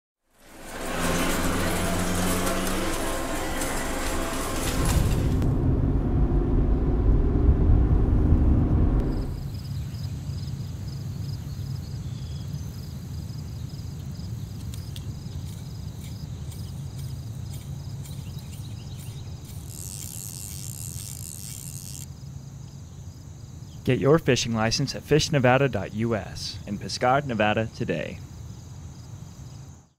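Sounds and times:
car road noise rumble: 0.4s - 10.0s
insects chirping: 9.1s - 29.9s.

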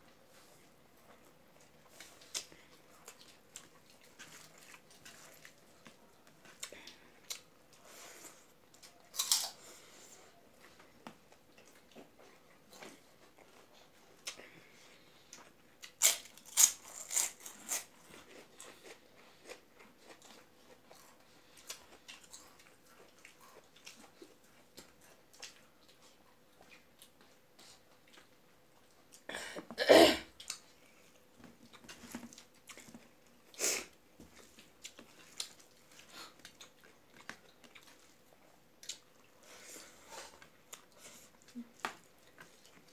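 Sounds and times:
soft chewing: 0.0s - 42.9s
crunchy bites: 9.1s - 9.6s.

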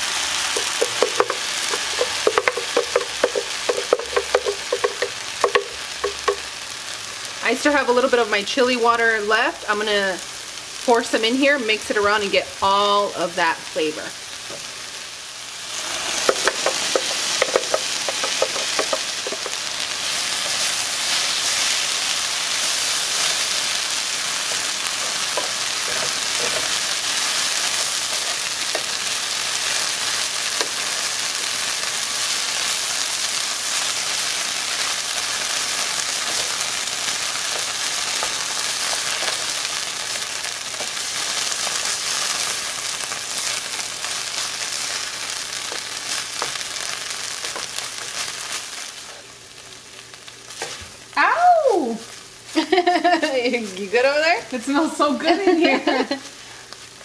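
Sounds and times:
sauce sizzling in a frying pan: 0.0s - 57.0s.

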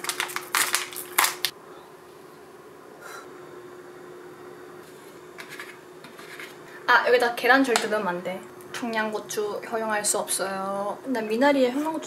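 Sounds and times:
faint steady hum: 0.0s - 12.0s
spoon scraping plastic tray: 5.4s - 6.6s.

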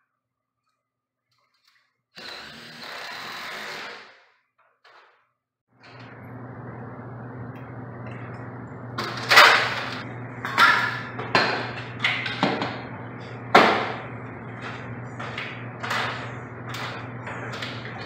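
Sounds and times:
low hum: 5.8s - 18.0s.

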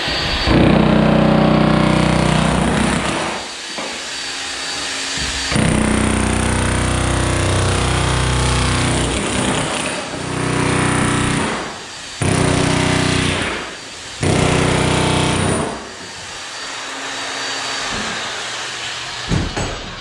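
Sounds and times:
demolition hammer hammering: 5.2s - 15.8s, 19.3s - 20.0s.

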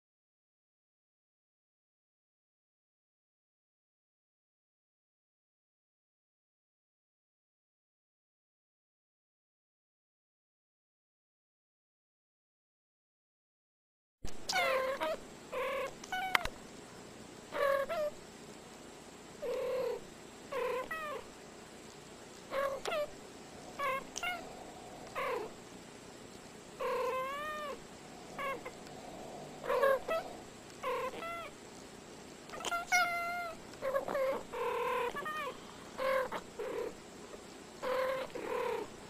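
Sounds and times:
cats meowing and chirping: 14.4s - 16.5s, 17.5s - 18.2s, 19.4s - 21.3s, 22.5s - 25.6s, 26.8s - 31.6s, 32.5s - 37.0s, 37.8s - 38.9s.

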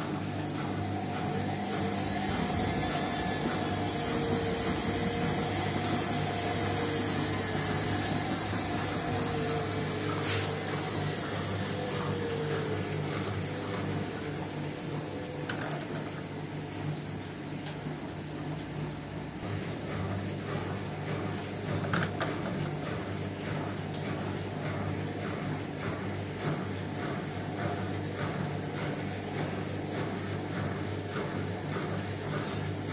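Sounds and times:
washing machine motor hum: 0.0s - 32.9s
washing machine clicks: 13.4s - 16.3s.

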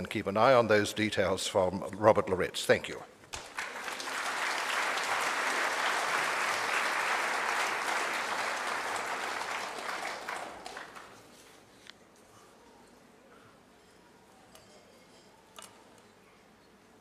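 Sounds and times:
audience applauding: 3.3s - 11.2s.

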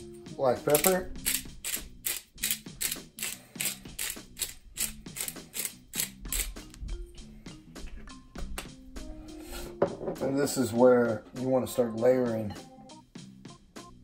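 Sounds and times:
pepper mill grinding clicks: 0.7s - 6.6s.

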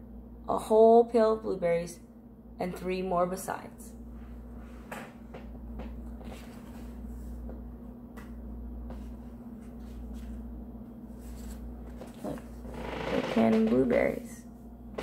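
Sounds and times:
steady low hum: 0.0s - 15.0s
pages turning: 6.2s - 7.4s, 9.0s - 10.4s, 11.1s - 12.6s.

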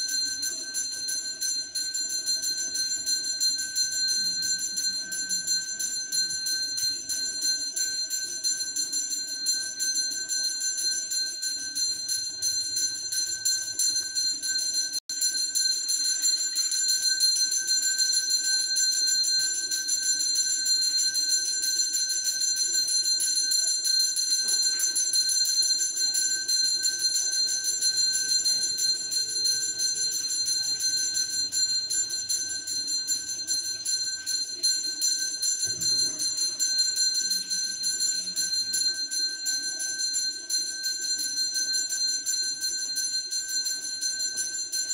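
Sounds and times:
temple bells ringing: 23.9s - 44.0s.

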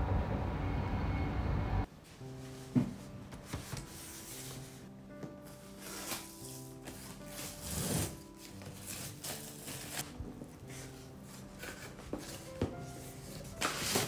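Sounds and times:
soft background music: 0.6s - 14.0s
cardboard scraping and rustling: 5.5s - 14.0s
packing tape pulled off: 5.6s - 10.1s, 10.7s - 14.0s.

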